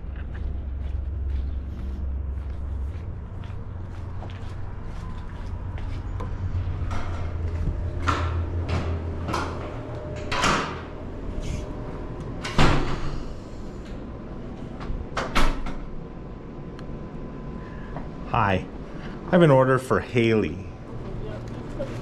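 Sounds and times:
low hum: 0.0 - 22.0
glass doors opening and shutting: 6.8 - 13.6, 14.5 - 16.0.

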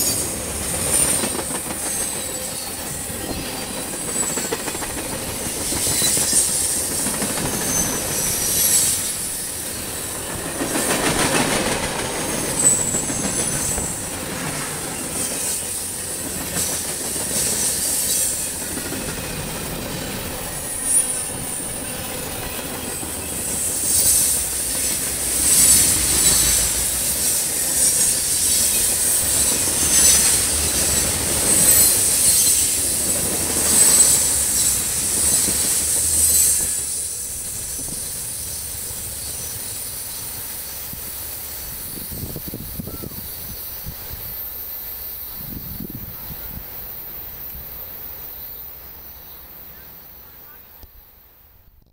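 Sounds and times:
train wheels rumbling on rail: 0.0 - 49.9
high-pitched wheel squeal: 12.4 - 14.0.

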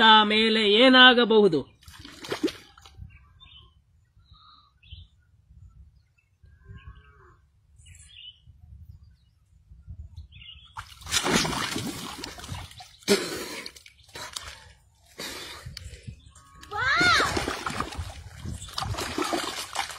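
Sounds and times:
faint bird chirps: 2.6 - 10.8
liquid splashing: 10.8 - 14.7, 17.1 - 19.9.

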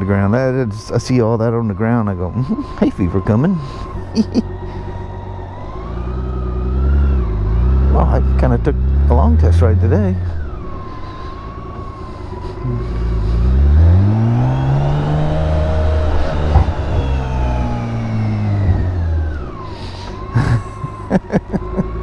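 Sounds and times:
motorcycle engine under throttle: 1.5 - 22.0
sharp knocks: 16.4 - 17.2.

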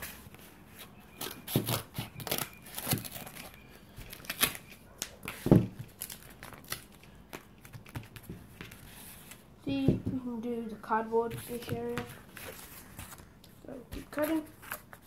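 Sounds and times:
cardboard crackling and rustling: 0.0 - 10.4, 11.0 - 15.0.

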